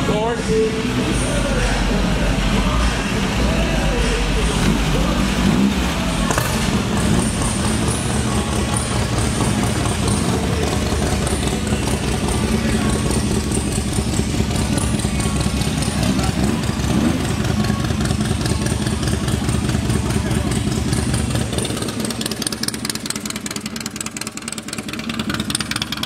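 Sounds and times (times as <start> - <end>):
buggy engine idling: 0.0 - 26.0.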